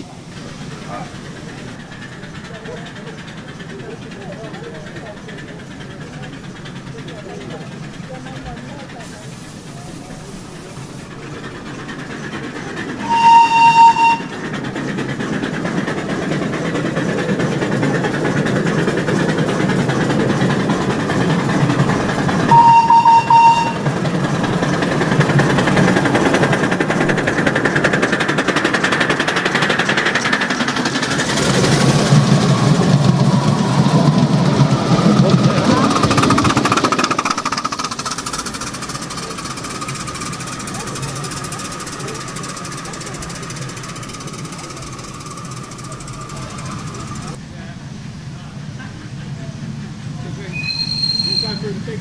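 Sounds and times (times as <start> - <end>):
locomotive exhaust and wheels: 0.0 - 52.0
steam locomotive whistle: 13.0 - 14.5, 22.4 - 24.0, 50.5 - 51.7.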